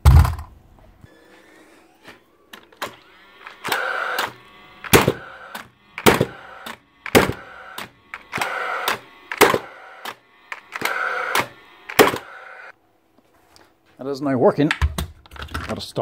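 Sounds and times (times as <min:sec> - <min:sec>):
nail gun fan whirring: 0:01.1 - 0:12.7
nail gun firing: 0:03.6 - 0:12.3.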